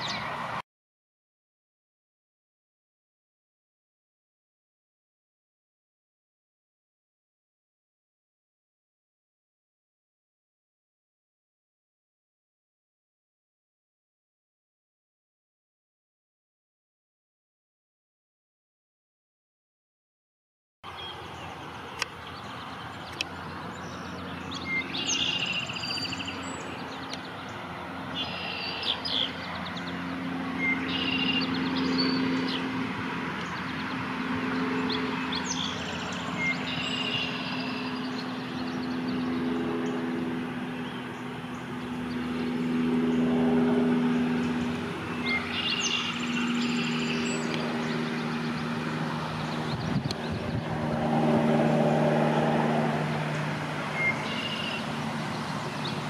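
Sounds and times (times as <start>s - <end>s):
low engine drone: 20.8s - 56.0s
bird singing warbled phrases: 20.9s - 32.7s, 33.4s - 40.1s, 44.2s - 50.7s, 53.2s - 56.0s.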